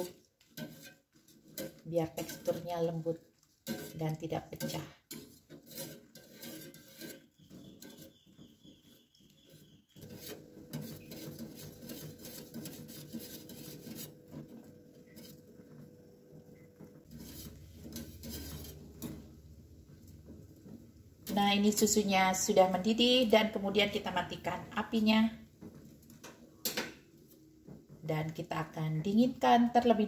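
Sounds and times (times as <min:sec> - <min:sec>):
whisk scraping metal saucepan: 0:00.0 - 0:28.0.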